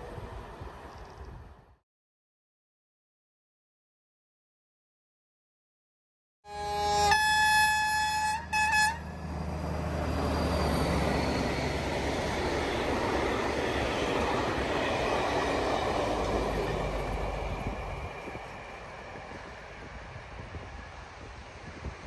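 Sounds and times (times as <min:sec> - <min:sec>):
train horn blasts: 0:06.5 - 0:09.5
train wheels on rails: 0:06.8 - 0:22.0.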